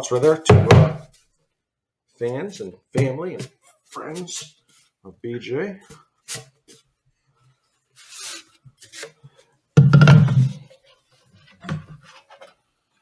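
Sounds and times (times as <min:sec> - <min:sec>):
paper rustling and sliding: 0:07.9 - 0:09.4.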